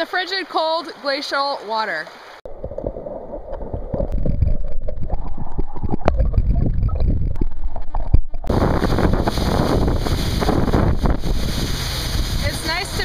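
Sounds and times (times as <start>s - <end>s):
underwater river gurgling: 0.0s - 13.0s
waterfall rushing: 8.5s - 13.0s.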